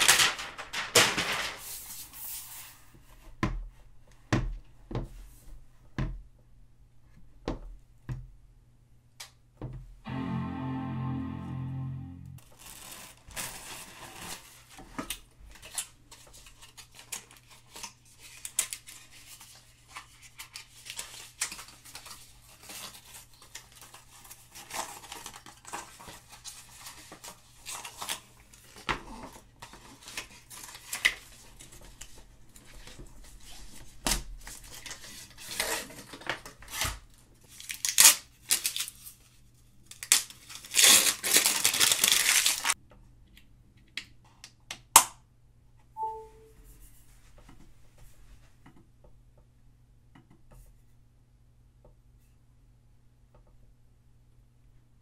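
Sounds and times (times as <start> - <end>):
loud plastic crinkling: 12.5 - 14.7, 40.0 - 42.8
packaging film tearing: 37.6 - 39.0, 39.9 - 42.8.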